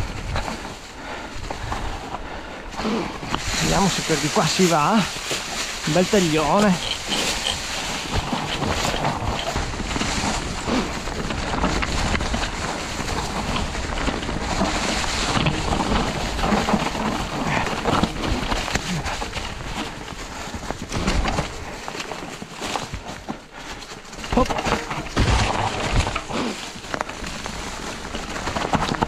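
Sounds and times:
wind rumble on microphone: 0.0s - 2.2s, 2.8s - 21.9s
bike rattling over rough trail: 0.0s - 29.0s.

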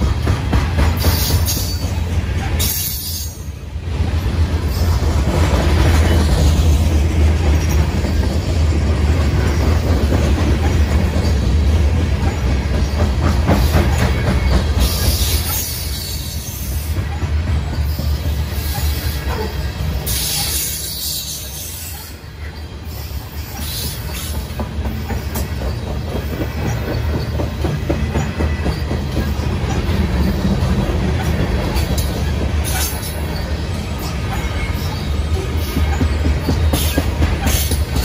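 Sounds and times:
steel wheels rumbling on rails: 0.0s - 38.0s
wheels clicking over rail joints: 0.0s - 38.0s.

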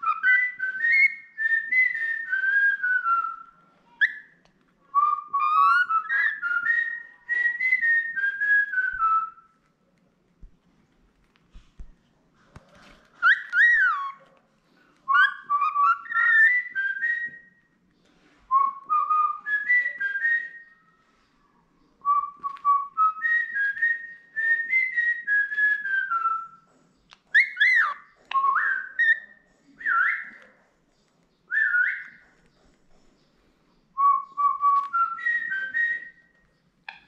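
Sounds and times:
cockatiel whistling melody: 0.0s - 9.5s, 12.8s - 14.3s, 15.1s - 17.7s, 18.5s - 21.0s, 22.0s - 30.6s, 31.5s - 32.4s, 34.0s - 37.0s.

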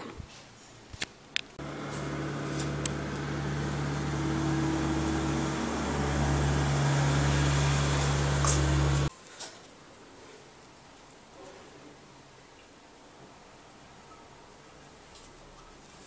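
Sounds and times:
low machine hum: 1.6s - 9.1s.

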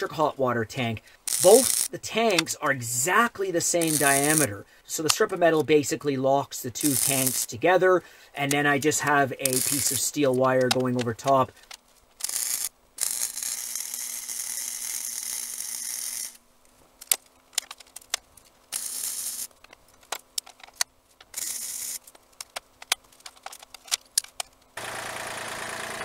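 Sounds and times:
faint steady hum: 0.0s - 24.8s
arc welding hissing crackle: 1.0s - 7.7s, 8.4s - 10.4s, 21.3s - 22.1s
sharp clicks and ticks: 1.3s - 2.8s, 3.8s - 5.7s, 6.8s - 7.5s, 8.4s - 14.7s.

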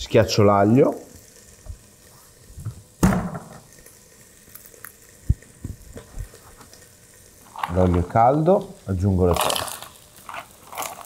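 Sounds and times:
sharp knock: 3.0s - 3.6s.

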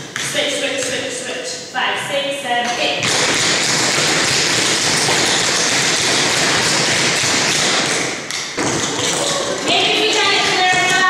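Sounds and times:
tap shoes on wooden floor: 2.7s - 11.0s.

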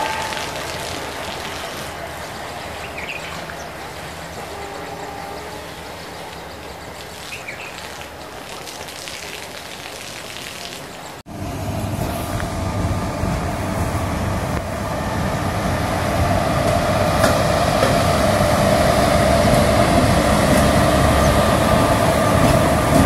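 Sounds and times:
train wheels rumbling on track: 11.3s - 23.0s.

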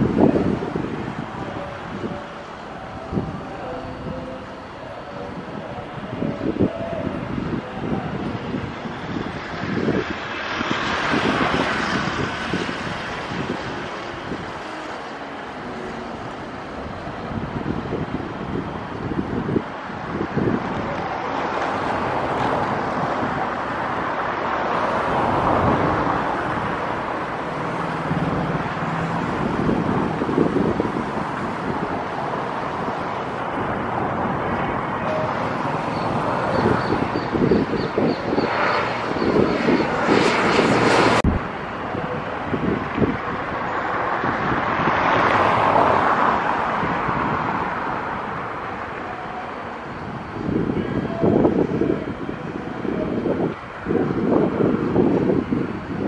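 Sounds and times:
high whine: 0.0s - 43.8s
turboprop engines at takeoff: 0.0s - 45.0s
jet airliner engines: 0.0s - 56.0s.

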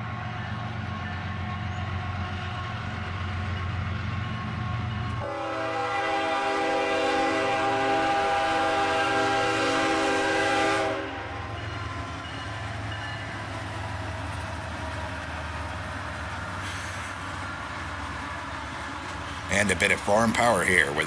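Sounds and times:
passing train rumble: 0.0s - 21.0s
locomotive air horn chord: 5.2s - 11.4s.

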